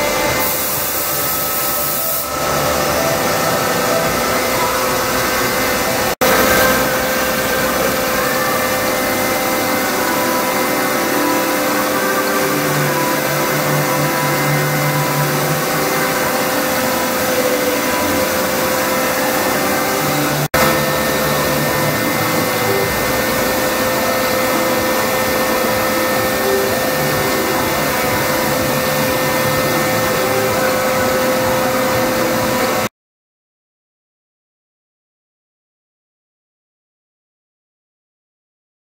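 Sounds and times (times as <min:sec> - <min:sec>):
milling machine cutting timber: 0:02.2 - 0:32.9.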